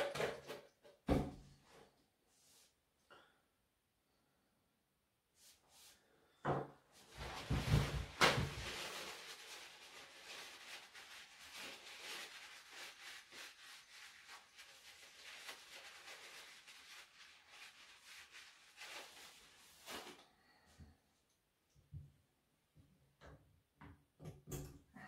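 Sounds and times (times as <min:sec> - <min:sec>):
paper towel rustling and rubbing: 0:07.0 - 0:20.3.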